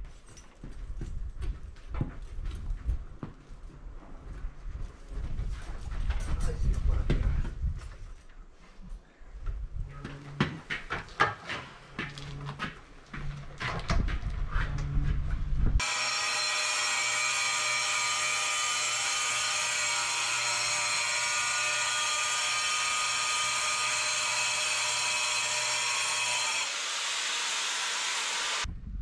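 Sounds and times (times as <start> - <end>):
power saw cutting stone: 15.8 - 28.7.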